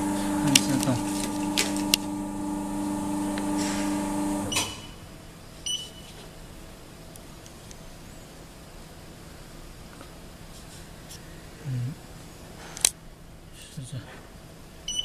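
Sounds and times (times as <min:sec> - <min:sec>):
paper cutter motor humming: 0:00.0 - 0:04.6
short high beeps: 0:05.7 - 0:06.1.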